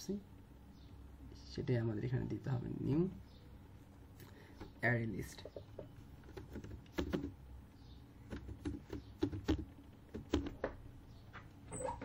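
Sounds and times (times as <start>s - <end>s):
typing on computer keyboard: 6.2s - 7.4s, 8.3s - 10.6s.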